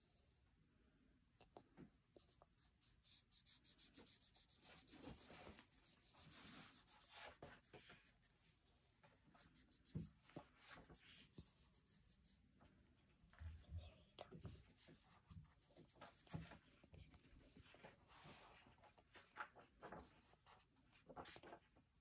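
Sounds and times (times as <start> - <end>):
marker scratching on board: 2.2 - 8.1, 9.4 - 12.4, 14.4 - 16.6.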